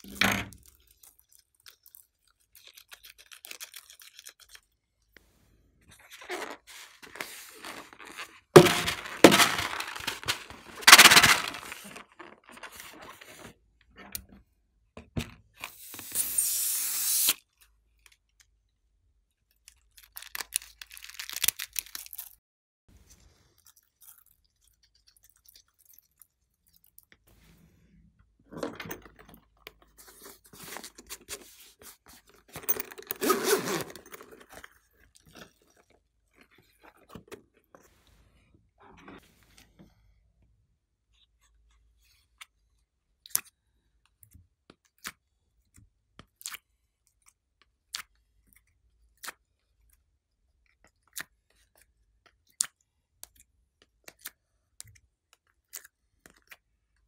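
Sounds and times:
balloon crunching and rubbing: 6.2 - 12.8, 33.1 - 34.1
fabric case rustling: 7.0 - 13.2.

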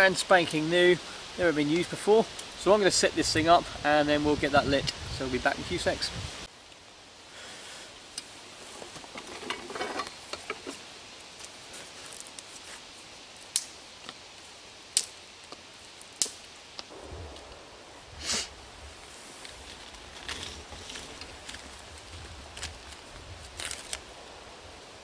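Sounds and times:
clothing and gear rustling: 8.3 - 13.1, 18.8 - 24.2
low rumble: 16.9 - 21.0.

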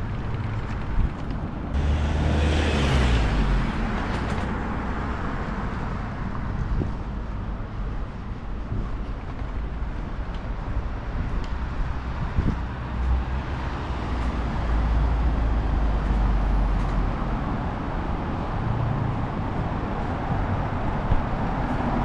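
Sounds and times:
street traffic hum: 0.0 - 22.0
vehicle driving past: 1.8 - 5.2.

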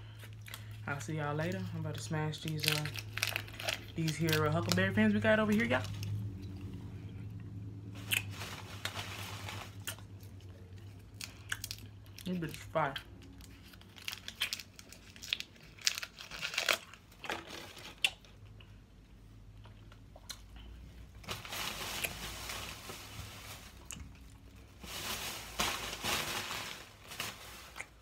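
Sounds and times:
candy wrapper crinkling: 0.6 - 6.2, 8.0 - 18.2.

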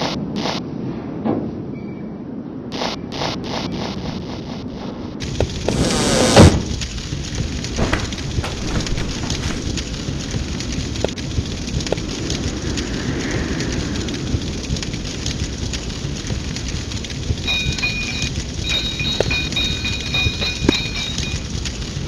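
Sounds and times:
crackles and clicks: 2.7 - 22.0
rain rushing: 5.2 - 22.0
loud thunder crash: 5.7 - 10.2.

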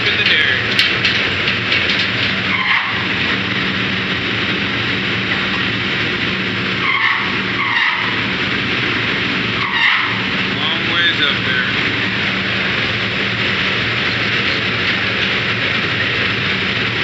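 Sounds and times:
engine hum: 0.0 - 17.0
loud noisy wash: 0.0 - 17.0
high squeals: 6.8 - 8.2, 9.6 - 10.3.

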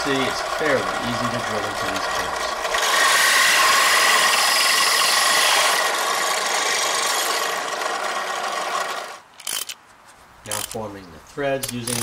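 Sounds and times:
drill press whirring: 0.0 - 9.6
drill bit scraping metal: 0.1 - 7.6.

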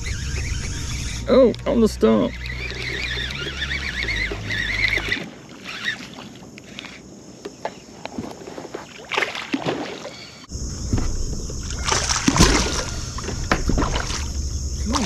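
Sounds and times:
water sloshing around kayak: 1.7 - 15.0
low steady hum: 10.5 - 15.0
loud splash: 11.8 - 12.9.

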